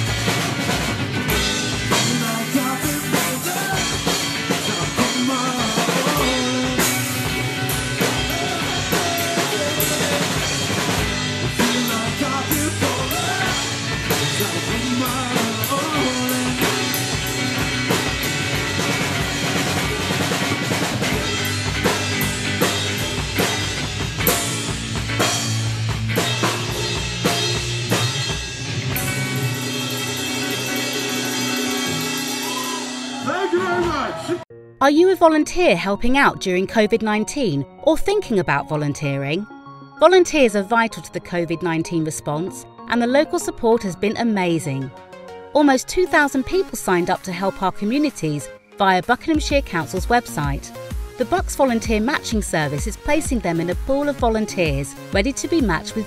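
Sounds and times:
rock song with drums and guitar: 0:00.0 - 0:34.4, 0:50.4 - 0:51.2, 0:54.7 - 0:56.0
kick drum beat: 0:54.2 - 0:55.9.

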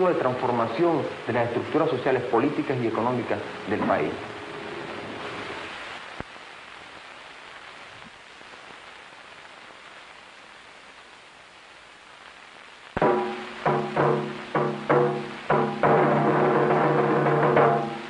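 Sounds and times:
old film soundtrack hiss: 0:00.0 - 0:18.0
ringing drum strikes: 0:13.0 - 0:18.0.

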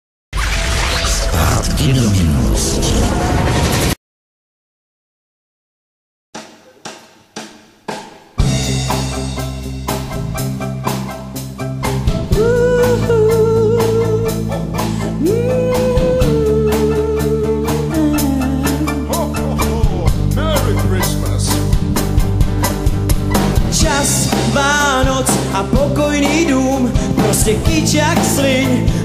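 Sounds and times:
drum kit beat: 0:06.4 - 0:29.0
bass: 0:08.4 - 0:29.0.

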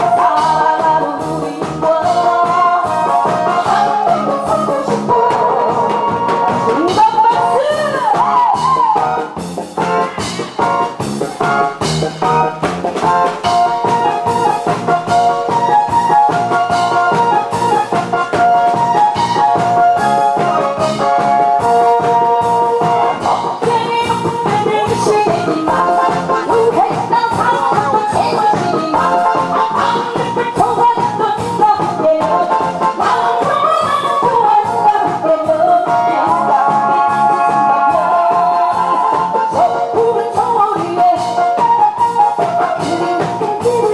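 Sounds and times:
woman singing: 0:00.0 - 0:09.3, 0:18.8 - 0:43.9
backing music with drum beat: 0:00.0 - 0:43.9.

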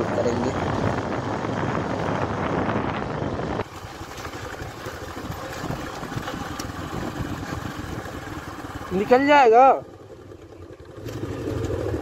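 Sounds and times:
wind on microphone: 0:00.0 - 0:09.0
motorcycle engine running: 0:00.0 - 0:12.0.

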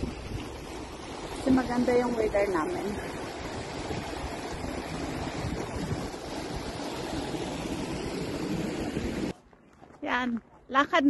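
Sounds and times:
stream rushing over gravel: 0:00.0 - 0:09.4
wind buffeting microphone: 0:00.0 - 0:09.4.

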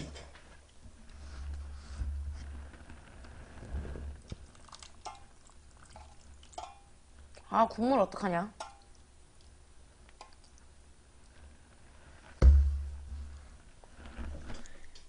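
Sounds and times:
low steady hum: 0:00.0 - 0:15.0
wet fruit squishing: 0:04.2 - 0:06.9.

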